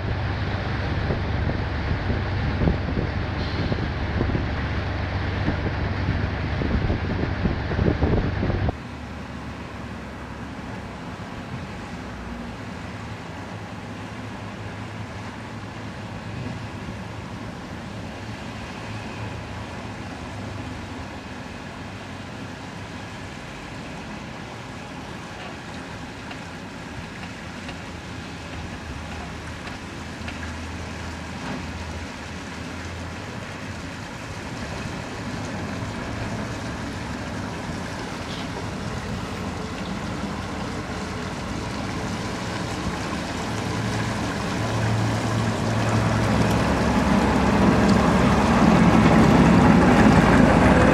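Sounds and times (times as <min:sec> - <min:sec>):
boat engine running: 0:00.0 - 0:08.8, 0:35.5 - 0:50.9
wind on microphone: 0:00.0 - 0:08.8.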